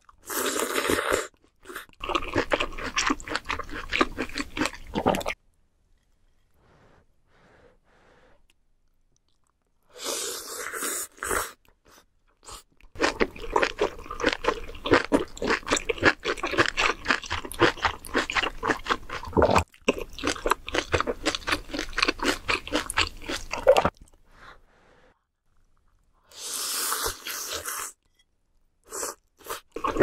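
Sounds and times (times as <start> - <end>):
wet crunchy chewing: 0.4 - 5.4, 13.0 - 24.2
slurping noodles: 26.3 - 28.0.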